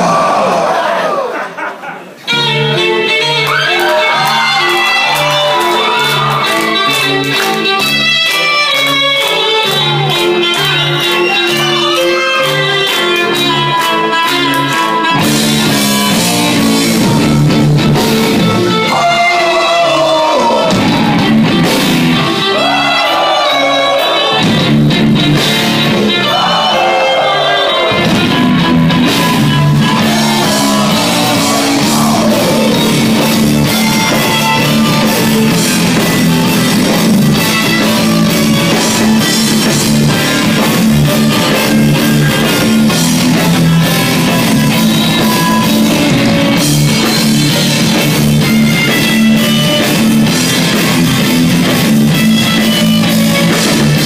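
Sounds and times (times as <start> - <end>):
metal band playing live: 2.3 - 54.0
person singing: 29.8 - 35.1.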